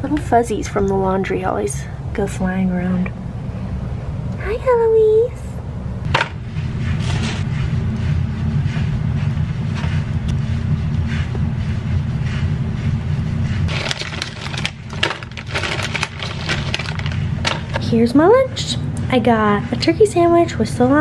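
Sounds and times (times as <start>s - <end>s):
low steady hum: 0.0s - 21.0s
chip bag crinkling: 13.7s - 17.8s
plastic packaging rustling: 13.7s - 17.8s.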